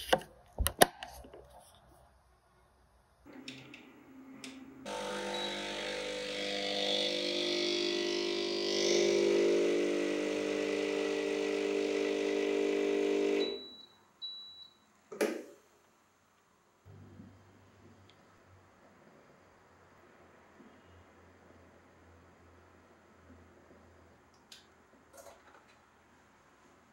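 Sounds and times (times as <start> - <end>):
espresso pump buzzing hum: 4.6 - 13.8.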